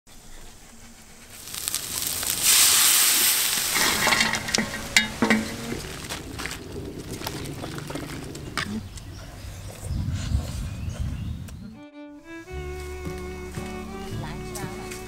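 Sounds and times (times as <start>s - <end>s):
metal spatula scraping wok: 1.4s - 6.2s
frogs sizzling in hot oil: 1.4s - 9.0s.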